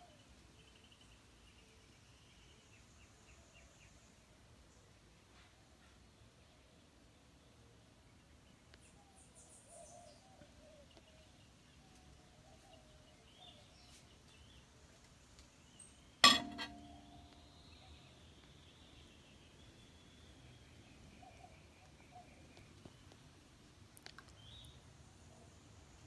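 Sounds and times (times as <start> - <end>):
sharp ringing clink: 16.2 - 17.3.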